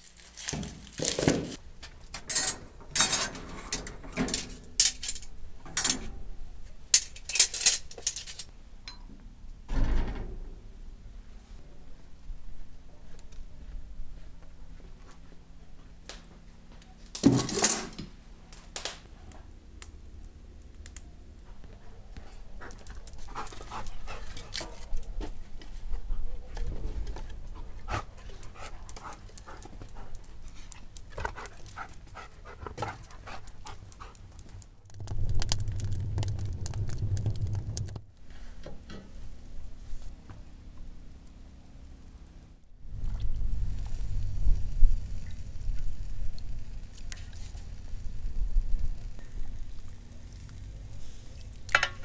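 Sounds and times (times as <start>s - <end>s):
dog panting: 21.4s - 24.9s, 27.5s - 34.5s.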